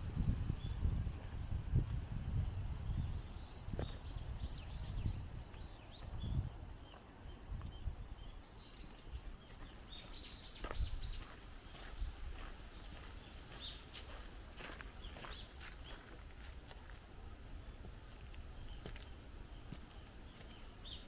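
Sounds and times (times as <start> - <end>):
wind rumble on microphone: 0.0 - 16.5
birds chirping: 2.4 - 16.4, 18.0 - 21.0.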